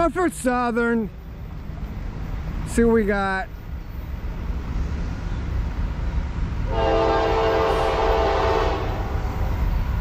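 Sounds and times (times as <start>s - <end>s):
locomotive air horn blast: 6.7s - 9.2s.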